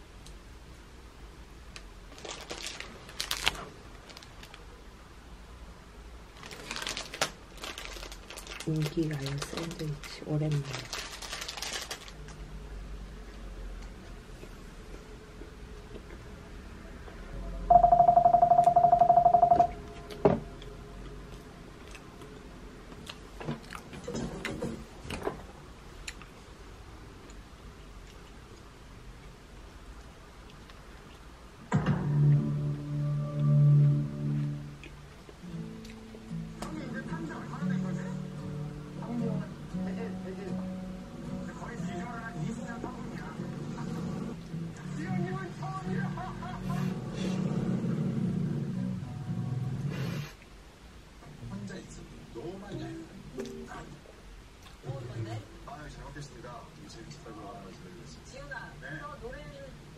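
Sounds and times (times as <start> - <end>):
plastic wrapper crinkling: 2.1 - 4.6, 6.3 - 12.4.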